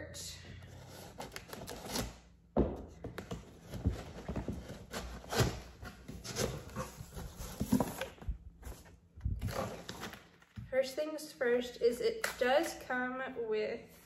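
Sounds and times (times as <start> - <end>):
cardboard knocks and rustles: 2.6 - 9.7
box cutter scraping cardboard: 3.6 - 8.2.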